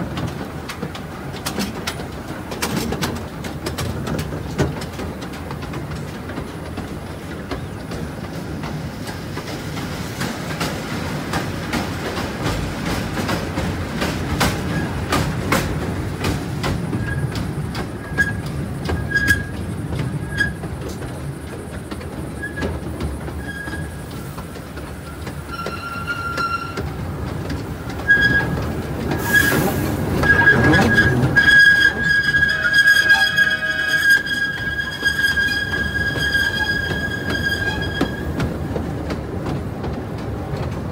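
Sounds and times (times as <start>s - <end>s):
train rumbling: 0.0s - 40.9s
wheels clacking over rail joints: 0.0s - 40.9s
high wheel squeals: 18.0s - 19.6s, 20.2s - 20.6s, 23.4s - 24.2s, 25.0s - 26.9s, 28.1s - 38.4s.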